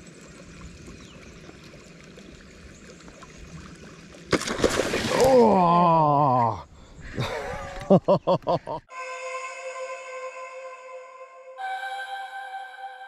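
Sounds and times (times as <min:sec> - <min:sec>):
river water flowing: 0:00.0 - 0:06.0
fish splashing at surface: 0:04.3 - 0:05.6.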